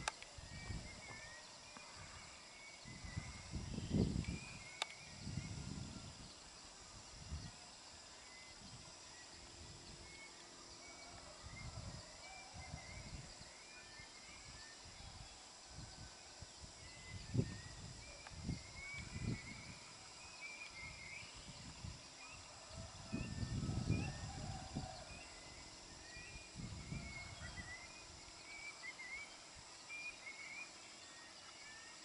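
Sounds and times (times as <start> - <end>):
short insect chirps: 0.0 - 15.0, 25.0 - 32.0
insects chirring: 0.0 - 32.0.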